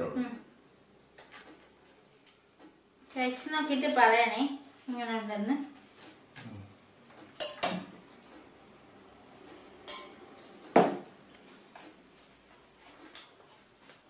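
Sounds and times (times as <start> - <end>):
steel tableware clinking: 7.4 - 7.8, 9.8 - 11.0.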